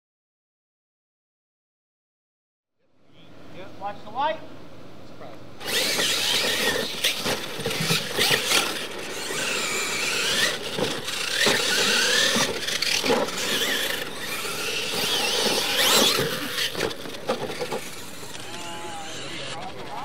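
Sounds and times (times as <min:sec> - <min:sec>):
toy truck motors whining: 0:05.6 - 0:20.0.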